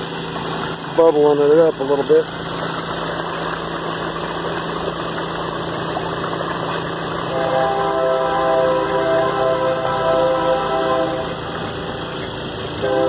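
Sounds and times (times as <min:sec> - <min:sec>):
pump engine running: 0:00.0 - 0:13.0
water rushing and churning: 0:00.0 - 0:13.0
distant train horn: 0:07.2 - 0:12.2, 0:12.8 - 0:13.0.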